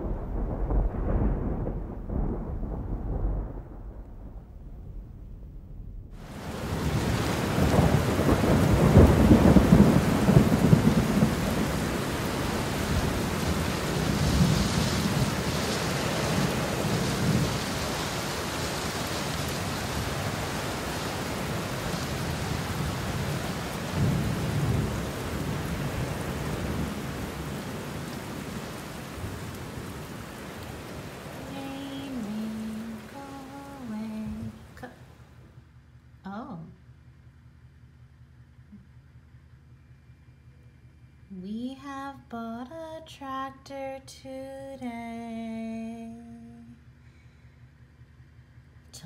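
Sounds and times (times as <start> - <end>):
rolling thunder: 0.0 - 33.4
rain falling: 0.0 - 35.8.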